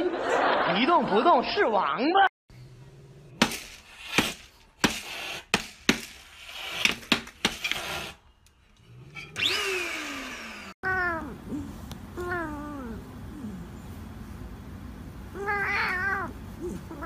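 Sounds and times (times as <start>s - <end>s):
cat meowing: 15.3s - 17.0s.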